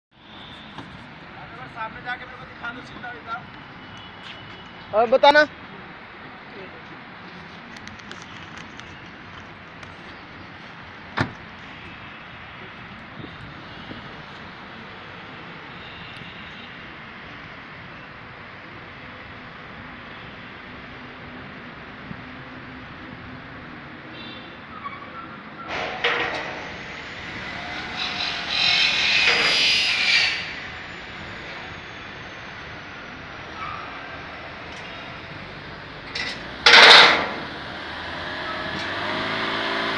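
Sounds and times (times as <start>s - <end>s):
car moving slowly past: 30.5s - 39.9s.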